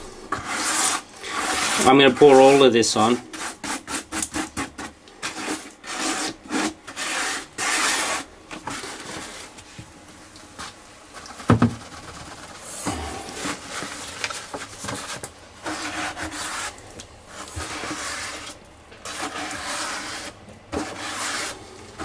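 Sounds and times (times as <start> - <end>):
wet concrete scraped from bucket: 0.0 - 9.5, 11.3 - 21.6
bucket knocks: 11.4 - 11.8.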